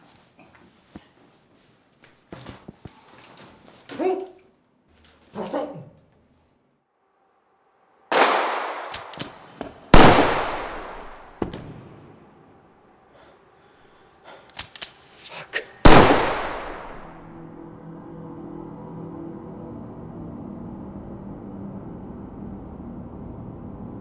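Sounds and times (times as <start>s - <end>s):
pistol shots echoing: 8.1s - 11.4s, 15.9s - 17.3s.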